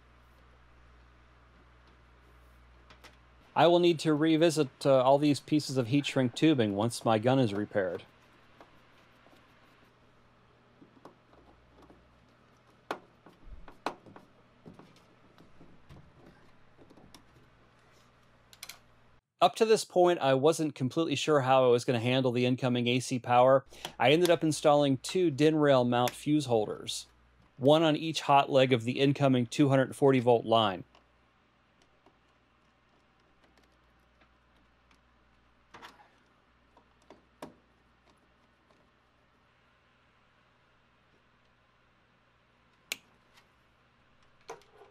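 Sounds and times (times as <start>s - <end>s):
screwdriver clicking on plastic: 31.8s - 38.8s.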